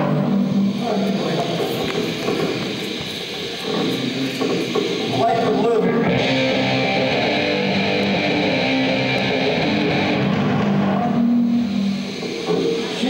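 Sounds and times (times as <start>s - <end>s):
distorted electric guitar: 0.0s - 13.0s
bass guitar playing: 6.0s - 11.8s.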